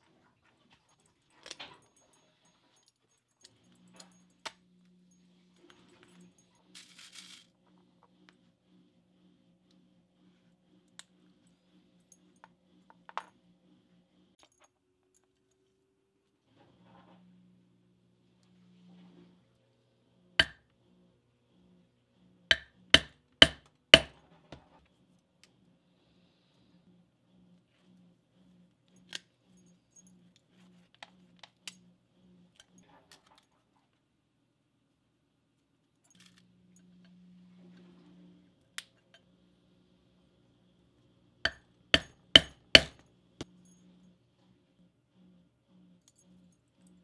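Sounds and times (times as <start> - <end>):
mallet striking metal tool: 22.5 - 24.2, 41.5 - 43.0.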